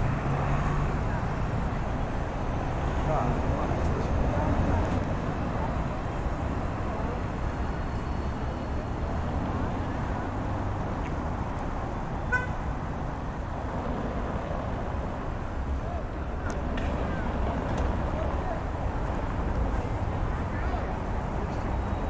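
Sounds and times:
road traffic noise: 0.0 - 22.0
car horn beep: 12.3 - 12.6.

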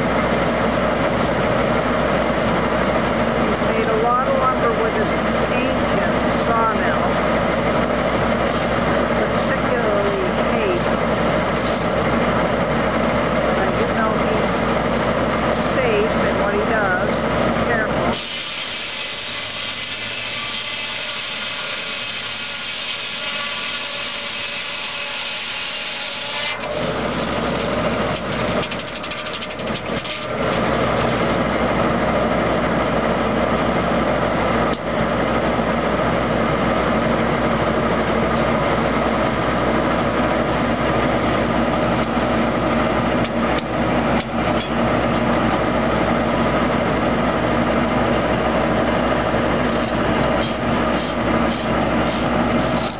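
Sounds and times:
circular saw cutting log: 17.7 - 30.9, 49.7 - 52.9.

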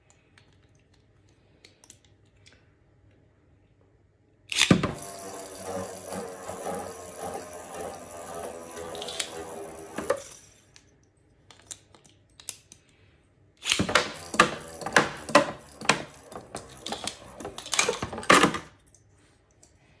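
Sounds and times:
spinning tops clattering in plastic arena: 4.6 - 10.6, 13.6 - 18.8.

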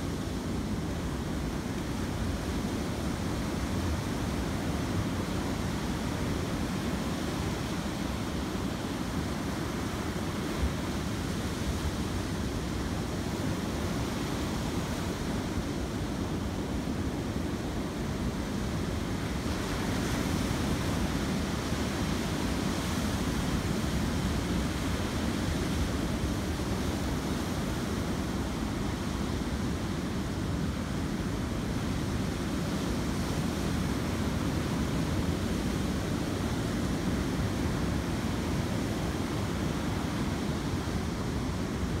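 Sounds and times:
ocean surf washing over rocks: 0.0 - 42.0.

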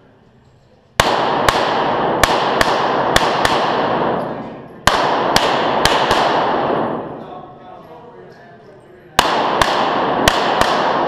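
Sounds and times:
pistol shots echoing indoors: 1.0 - 7.6, 9.1 - 11.0.

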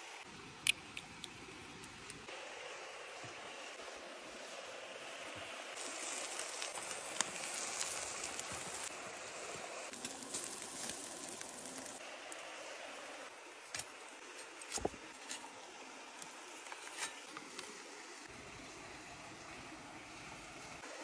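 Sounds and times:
stream and waterfall rushing: 2.3 - 6.0.

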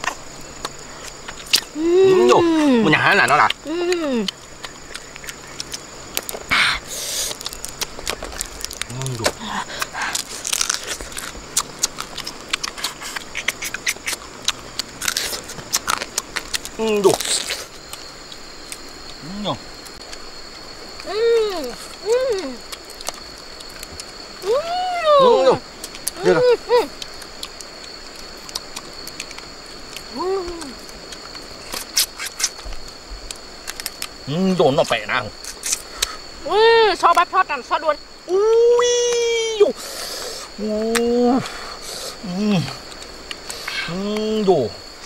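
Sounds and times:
insects droning: 0.0 - 45.0
person humming: 1.8 - 3.0, 3.6 - 4.4, 8.9 - 9.8, 21.0 - 22.6, 30.1 - 30.8, 42.2 - 42.8
chewing with wet mouth clicks: 3.3 - 8.9, 9.7 - 19.2, 21.8 - 24.2, 26.9 - 34.2, 42.8 - 43.8
crab shell crunching: 3.3 - 19.2.

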